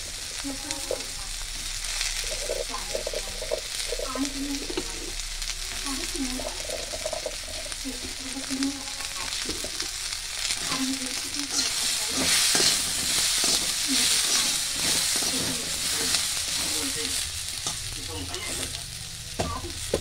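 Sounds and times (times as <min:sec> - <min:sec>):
vegetables sizzling in wok: 0:00.0 - 0:20.0
metal spatula scraping pan: 0:11.5 - 0:16.8.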